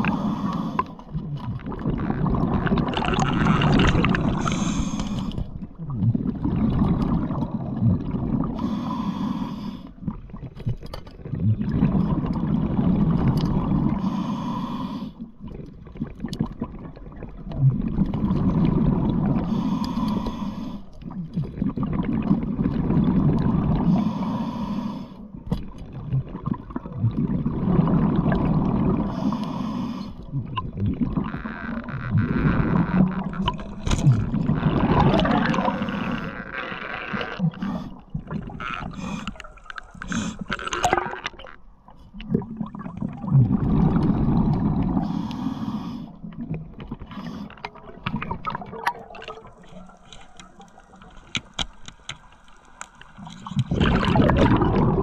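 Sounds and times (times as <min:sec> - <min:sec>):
diver breathing through regulator: 0:00.0 - 0:01.1, 0:04.0 - 0:05.6, 0:08.6 - 0:10.0, 0:13.9 - 0:15.2, 0:19.4 - 0:21.0, 0:23.8 - 0:25.3, 0:29.0 - 0:30.3, 0:37.4 - 0:40.7, 0:44.9 - 0:46.3.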